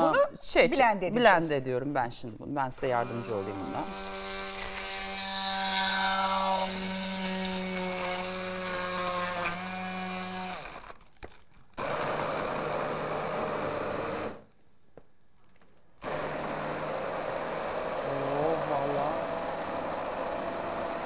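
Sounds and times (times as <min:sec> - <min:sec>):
stick blender humming: 0:02.8 - 0:11.1, 0:11.8 - 0:14.5, 0:16.0 - 0:21.0.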